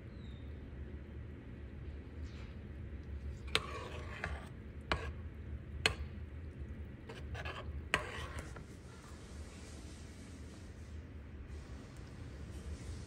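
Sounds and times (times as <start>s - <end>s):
spoon scraping in a pot: 3.1s - 9.2s.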